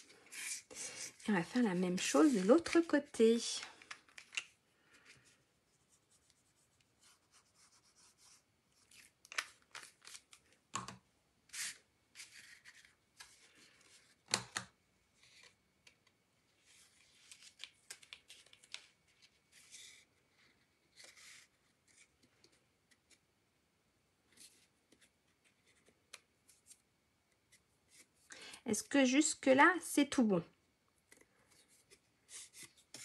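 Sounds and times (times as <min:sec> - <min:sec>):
cardstock rustling and scraping: 0:00.0 - 0:05.4, 0:11.5 - 0:14.2.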